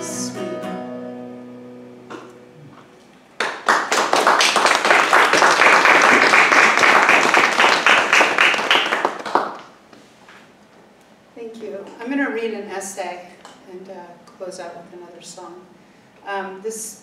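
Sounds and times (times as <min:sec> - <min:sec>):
acoustic guitar chord ringing: 0:00.0 - 0:03.0
audience applause: 0:03.4 - 0:09.7.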